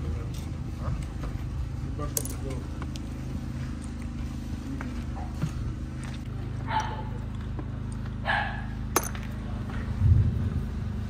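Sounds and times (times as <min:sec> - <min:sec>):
steady low hum: 0:00.0 - 0:11.0
dog barking: 0:06.7 - 0:07.2, 0:08.2 - 0:08.8.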